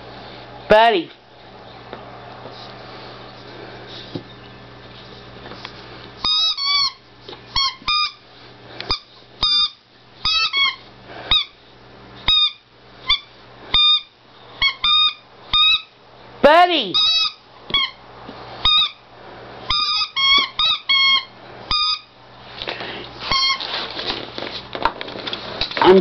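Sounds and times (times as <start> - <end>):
squeaky toy squeaks: 6.2 - 8.2, 8.9 - 11.6, 12.3 - 16.0, 17.0 - 18.0, 18.6 - 19.0, 19.7 - 22.1, 23.3 - 23.7.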